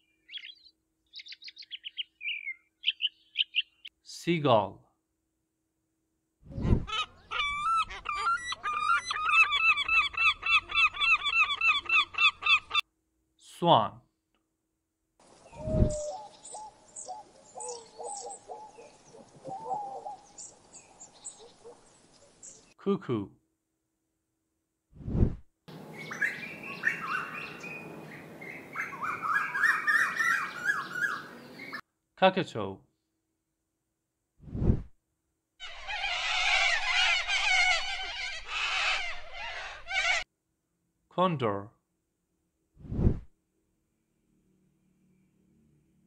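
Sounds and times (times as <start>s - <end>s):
birds chirping and calling: 0.2s - 3.9s, 6.8s - 12.8s, 15.4s - 22.7s, 25.7s - 31.8s, 35.6s - 40.2s
gull calling: 6.8s - 12.8s, 28.7s - 31.8s, 35.6s - 40.2s.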